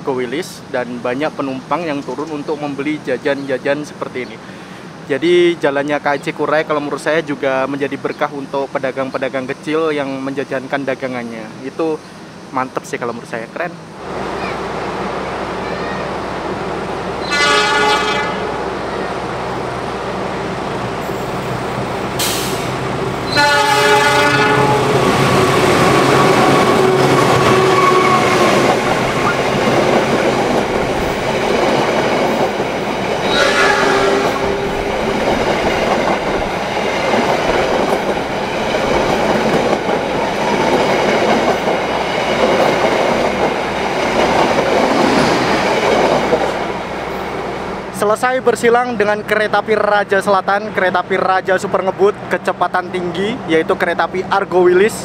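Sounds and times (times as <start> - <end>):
train rushing and rattling past: 0.0 - 55.0
train horn: 17.2 - 18.6, 23.3 - 28.5, 33.2 - 34.8.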